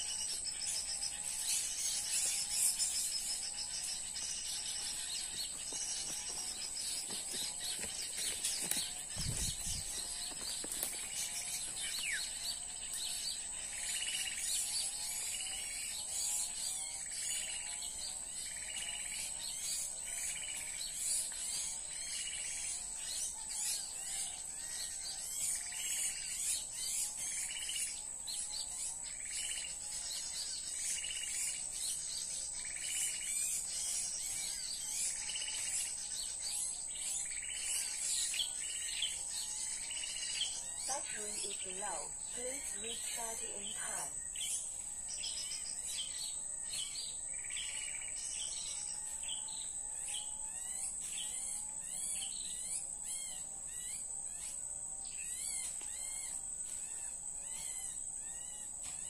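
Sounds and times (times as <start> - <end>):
high insect whine: 0.0 - 59.0
bird calls from a speaker: 40.8 - 44.2.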